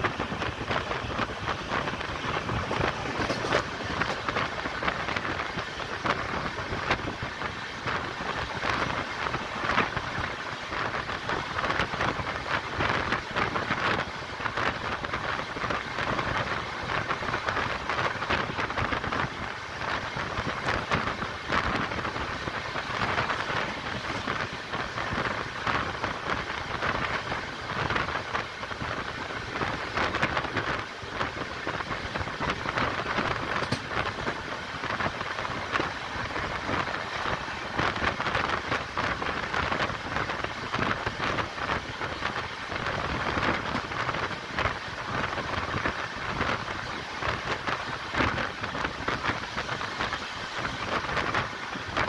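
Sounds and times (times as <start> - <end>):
steady rushing noise: 0.0 - 52.0
train wheels rumbling on rails: 0.0 - 52.0.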